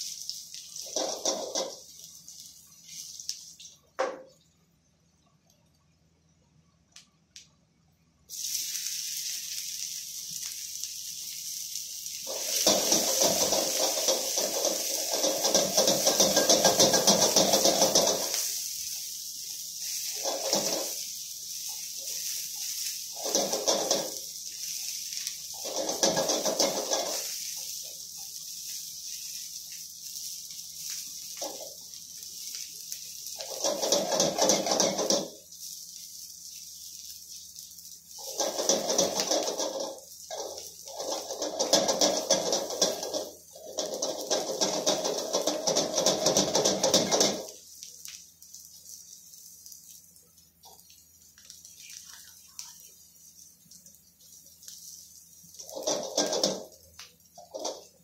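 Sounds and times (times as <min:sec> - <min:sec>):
spatula stirring in wok: 0:00.0 - 0:03.3, 0:10.8 - 0:47.7, 0:52.9 - 0:58.0
oil sizzling in a wok: 0:00.0 - 0:05.1, 0:08.0 - 0:58.0.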